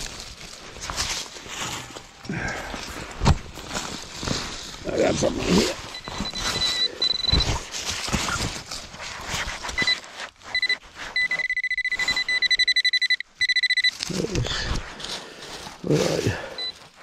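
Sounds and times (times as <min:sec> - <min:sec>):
leaves and soil rustling: 0:00.0 - 0:11.4, 0:13.9 - 0:17.0
metal detector pinpointer beeping: 0:05.9 - 0:07.6, 0:09.8 - 0:14.1, 0:16.6 - 0:16.8.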